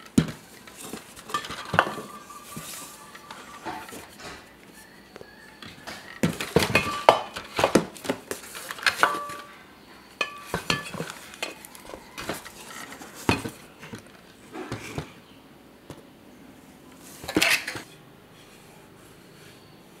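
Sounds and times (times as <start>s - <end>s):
canisters clinking together: 0.0s - 4.6s, 5.6s - 9.6s, 10.2s - 13.6s.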